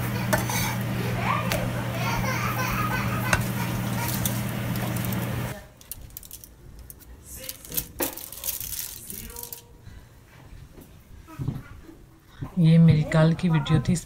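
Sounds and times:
food frying in pan: 0.0s - 5.6s.

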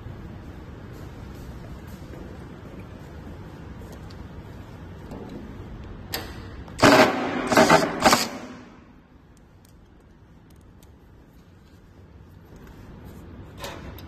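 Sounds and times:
short mechanical rattling bursts: 6.8s - 8.9s.

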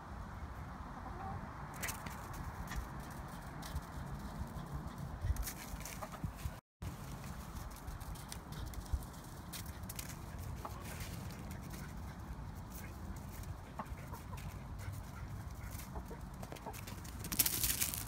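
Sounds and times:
hen clucking: 10.6s - 11.0s, 13.5s - 17.0s.

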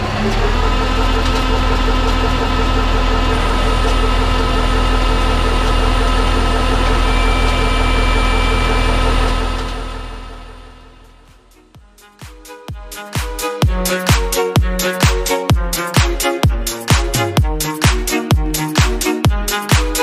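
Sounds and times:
mechanical whine: 0.0s - 11.9s
tractor engine running: 0.0s - 20.0s.

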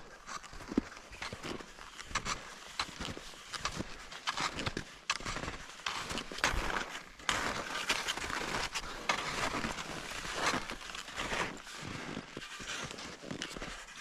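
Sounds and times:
footsteps in snow: 0.0s - 14.0s.

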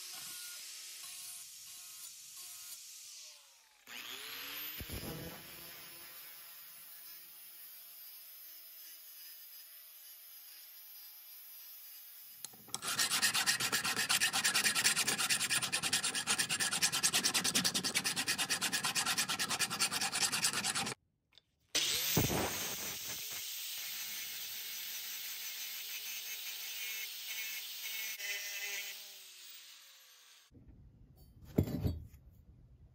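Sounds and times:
angle grinder on steel: 12.4s - 21.0s, 21.8s - 30.5s
hand file scraping steel: 12.4s - 21.0s.

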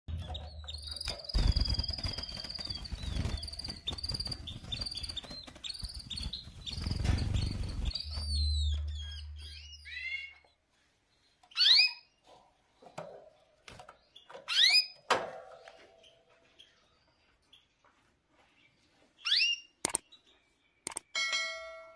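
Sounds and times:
canaries chirping: 0.1s - 12.8s, 13.4s - 21.1s
wing flapping and rustling: 1.0s - 8.3s.

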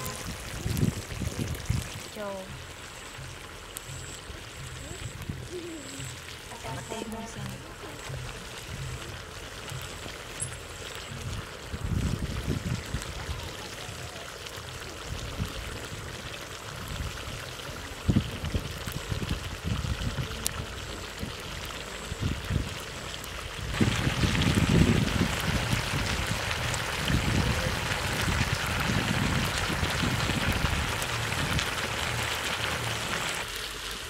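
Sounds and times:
broth bubbling and sizzling: 0.0s - 34.0s
low rumbles: 18.0s - 33.5s.

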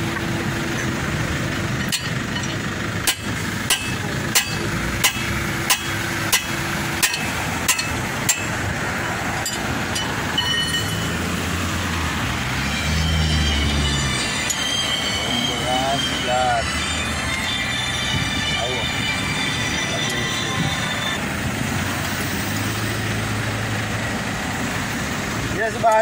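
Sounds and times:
vehicle engine rumble: 0.0s - 26.0s
hammer ringing on wheel hub: 1.8s - 11.2s.

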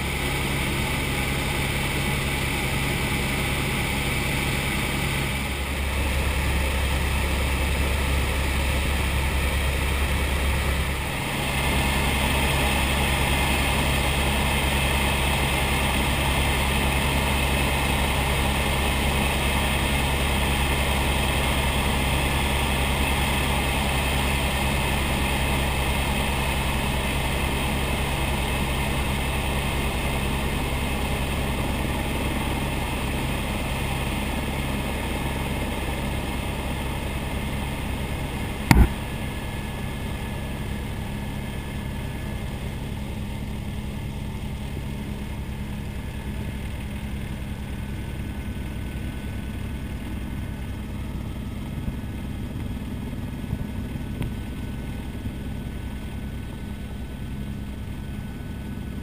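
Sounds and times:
helicopter cabin drone: 0.0s - 59.0s.

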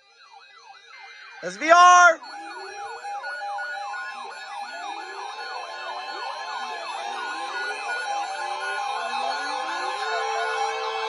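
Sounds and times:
weather alert radio alarms: 1.4s - 3.0s.

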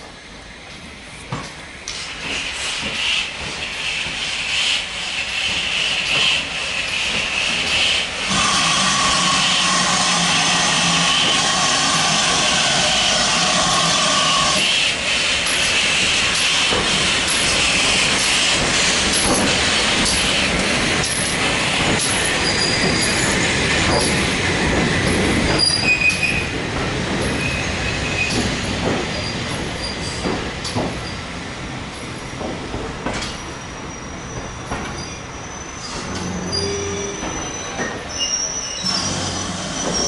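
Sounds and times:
train rolling on rails: 0.0s - 40.0s
steady steam hiss: 0.3s - 25.5s
high-pitched wheel squeal: 33.8s - 40.0s.

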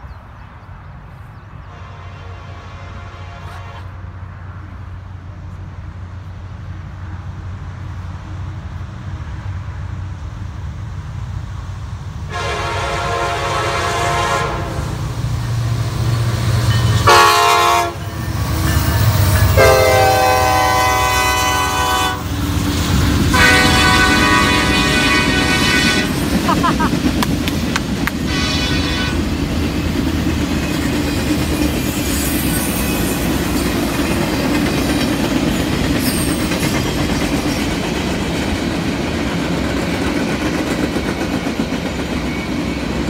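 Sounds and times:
diesel locomotive engine rumble: 0.0s - 43.0s
train air horn blasts: 1.6s - 4.1s, 12.3s - 15.0s, 16.8s - 22.4s, 23.2s - 26.4s, 28.2s - 29.4s.

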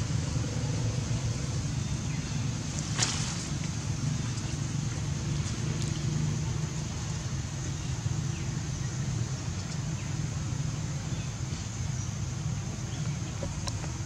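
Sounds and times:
constant high hiss: 0.0s - 14.0s
low rumble of road traffic: 0.0s - 14.0s
faint ticks: 13.0s - 14.0s.

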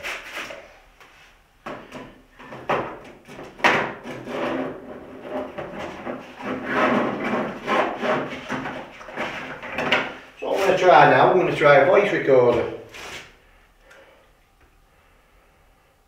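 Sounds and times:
rubbing and rustling: 3.2s - 11.2s, 12.6s - 13.4s.

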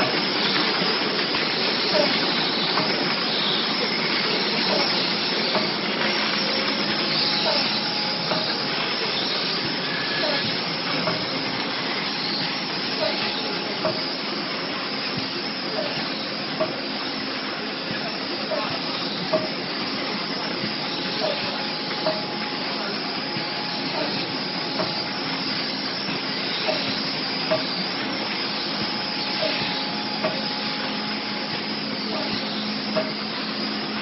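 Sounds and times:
machinery hissing hum: 0.0s - 34.0s.

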